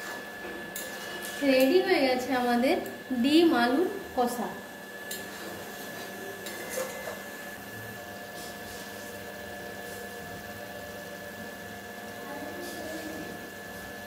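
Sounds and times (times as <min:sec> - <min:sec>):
metal spatula scraping pot: 0:05.1 - 0:07.3.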